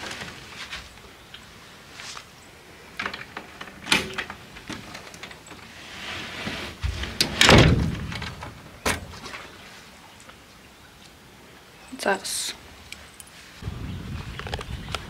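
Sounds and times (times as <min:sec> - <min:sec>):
door shutting thud: 0:07.2 - 0:09.1
wooden door clicks and knocks: 0:07.2 - 0:09.1.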